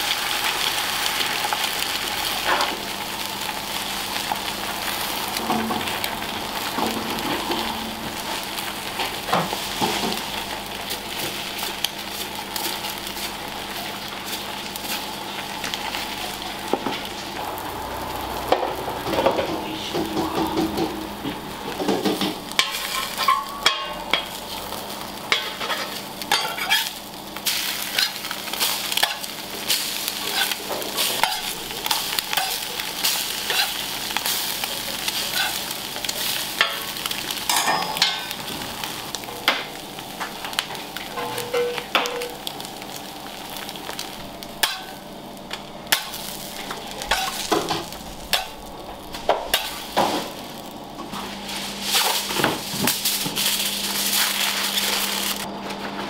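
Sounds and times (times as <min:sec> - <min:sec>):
food sizzling in a pan: 0:00.0 - 0:55.5
metal utensil scraping a pan: 0:29.0 - 0:33.8, 0:35.3 - 0:35.6.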